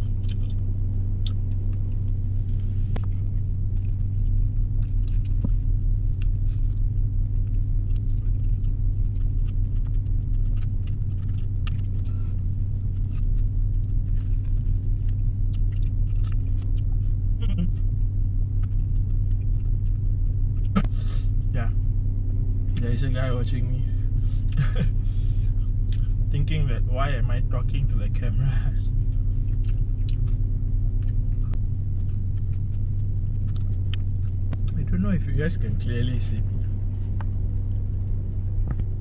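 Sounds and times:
man chewing: 0.0s - 21.4s, 24.1s - 26.3s, 28.7s - 34.8s
car engine idling: 0.0s - 39.0s.

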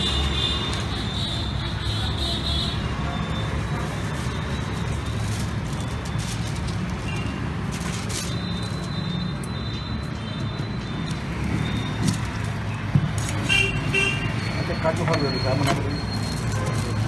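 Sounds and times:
street traffic rumble: 0.0s - 17.0s
aluminium foil crinkling: 3.8s - 9.0s, 15.6s - 17.0s.

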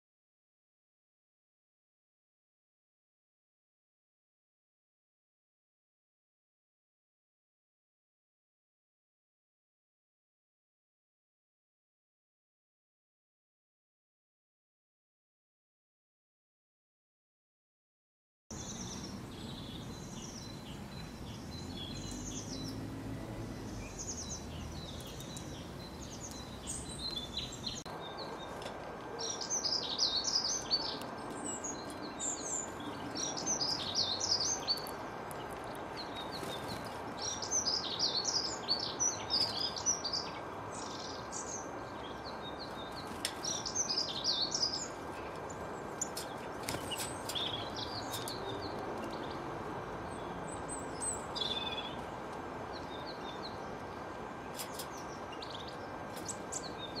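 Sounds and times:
songbirds chirping and singing: 18.5s - 57.0s.

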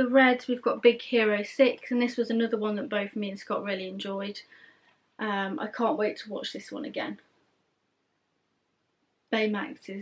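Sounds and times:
woman speaking: 0.0s - 4.5s, 5.2s - 7.3s, 9.3s - 10.0s.

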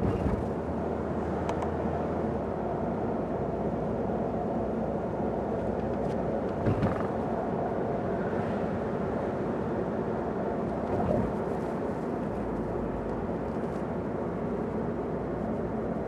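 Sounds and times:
car tyre and engine rumble: 0.0s - 16.0s
low thump: 6.6s - 7.1s.

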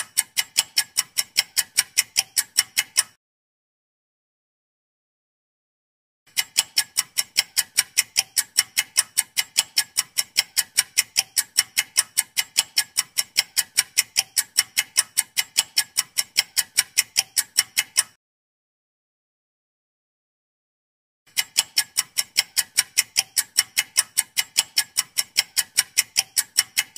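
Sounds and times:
clock ticking: 0.0s - 3.2s, 6.3s - 18.2s, 21.3s - 26.9s.

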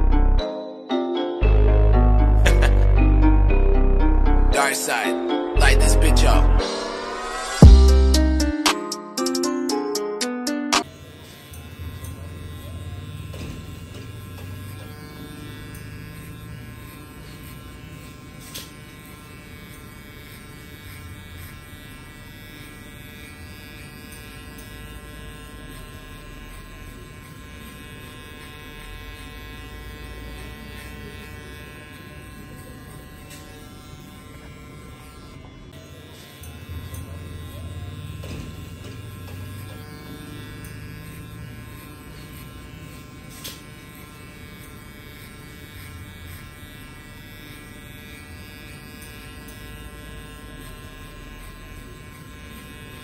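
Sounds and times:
electric hair clippers buzzing: 0.0s - 53.0s.

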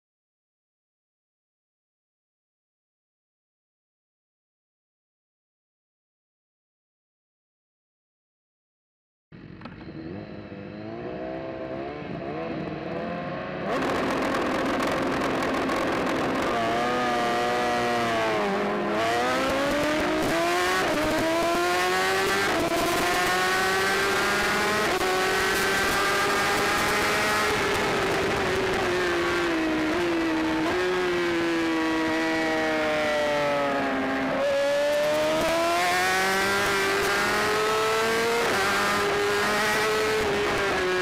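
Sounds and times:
motorcycle engine upshifting: 13.6s - 41.0s.

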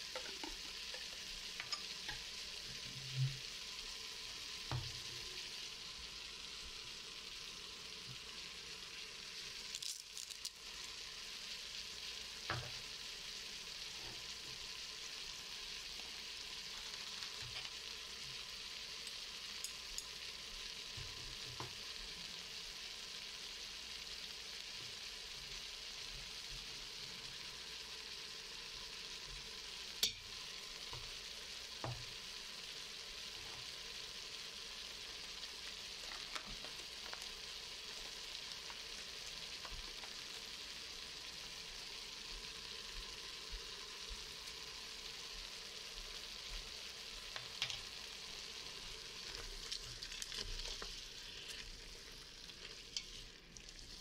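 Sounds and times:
onions and meat sizzling: 0.0s - 54.0s.

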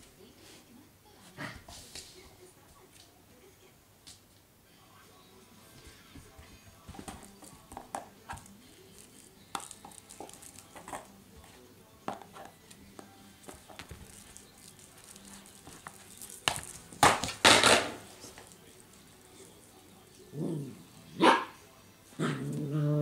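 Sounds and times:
puppy knocking toys on floor: 15.1s - 18.1s.

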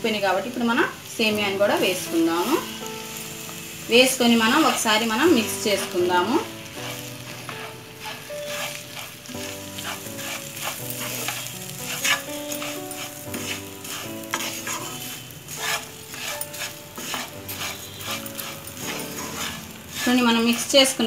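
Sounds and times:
light sizzle of frying: 0.0s - 21.0s
spatula scraping frying pan: 1.7s - 21.0s.

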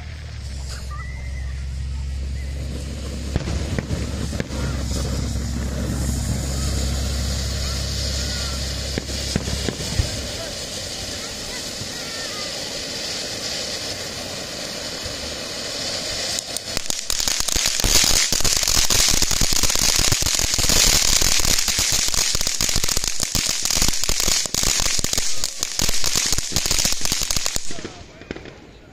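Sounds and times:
firework fountain hissing: 0.0s - 28.9s
firework loud crackling: 0.0s - 28.9s.

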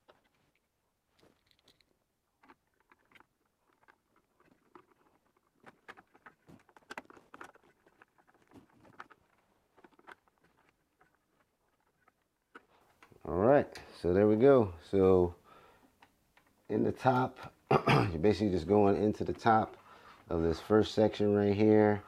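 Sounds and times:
cable handling clicks and scrapes: 0.0s - 13.3s.

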